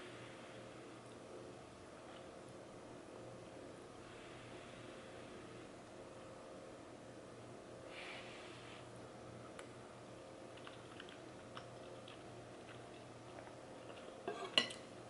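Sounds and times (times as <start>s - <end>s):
person chewing food: 10.5s - 14.6s.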